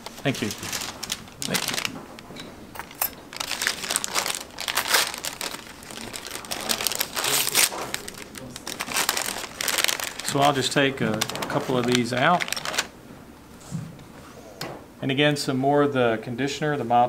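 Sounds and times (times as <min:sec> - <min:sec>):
packet crinkling and tearing: 0:00.0 - 0:12.9.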